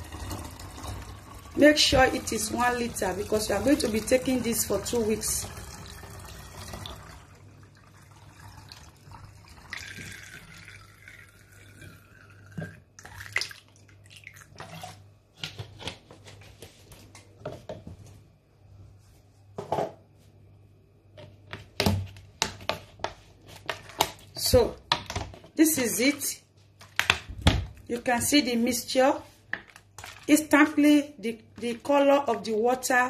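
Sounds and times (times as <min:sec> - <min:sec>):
water running into plastic bottle: 0:00.0 - 0:15.1, 0:29.5 - 0:30.8.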